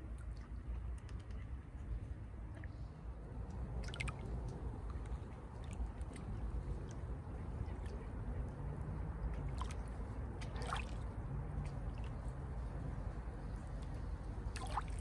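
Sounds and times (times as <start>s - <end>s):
water drips and gurgles: 0.0s - 1.6s, 2.4s - 15.0s
steady low rumble: 0.0s - 15.0s
waves lapping at shoreline: 3.7s - 12.9s, 14.4s - 15.0s.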